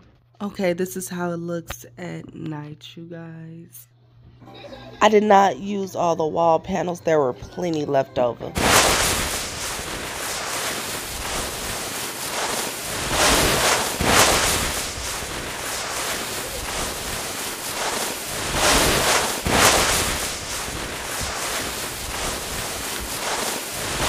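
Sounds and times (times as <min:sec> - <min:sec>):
heavy rain hissing: 0:08.6 - 0:24.0.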